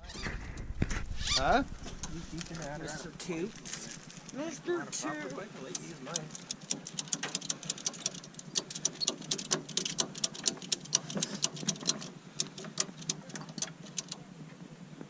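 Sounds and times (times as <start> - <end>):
ratchet strap clicking: 5.6 - 14.2.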